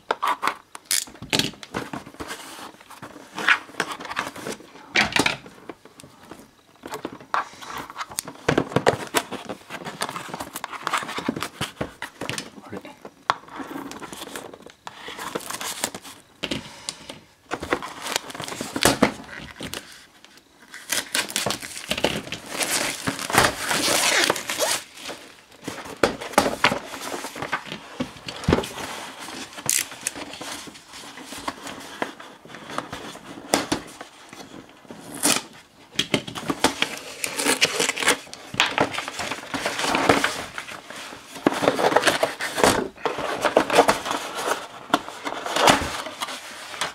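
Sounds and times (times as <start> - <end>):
plastic wrapping crinkling: 17.6 - 46.9
cardboard packaging sliding: 36.3 - 46.9.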